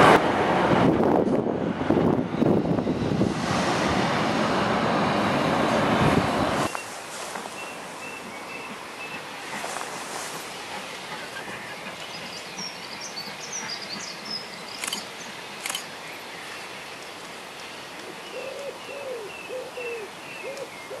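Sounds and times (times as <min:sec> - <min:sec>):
steady outdoor hiss: 0:00.0 - 0:21.0
small birds chirping: 0:11.2 - 0:17.2, 0:18.0 - 0:21.0
sharp clicks: 0:14.8 - 0:15.9.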